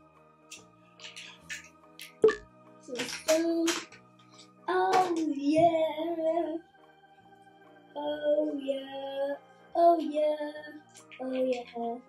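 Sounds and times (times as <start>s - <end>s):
background music: 0.0s - 12.0s
child singing: 2.8s - 4.0s, 4.6s - 6.6s, 7.9s - 12.0s.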